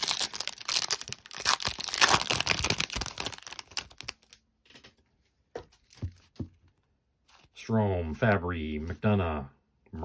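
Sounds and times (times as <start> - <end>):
foil pack tearing and crinkling: 0.0 - 4.4.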